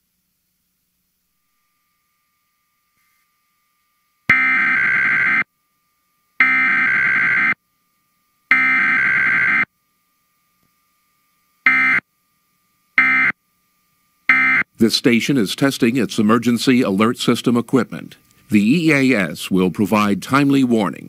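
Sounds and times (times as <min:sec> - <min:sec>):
harsh buzzy data bursts: 0:04.3 - 0:05.5, 0:06.4 - 0:07.6, 0:08.5 - 0:09.7, 0:13.0 - 0:13.4, 0:14.3 - 0:20.8.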